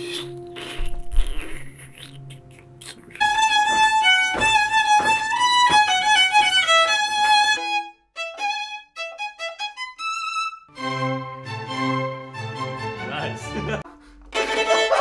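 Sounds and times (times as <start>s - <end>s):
regular thumps: 0.8s - 7.6s
solo violin melody: 3.2s - 13.1s, 14.3s - 15.0s.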